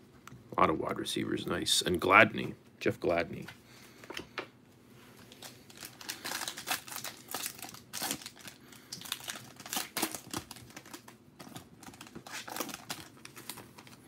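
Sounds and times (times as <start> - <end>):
foil wrapper crinkling: 5.2 - 14.0.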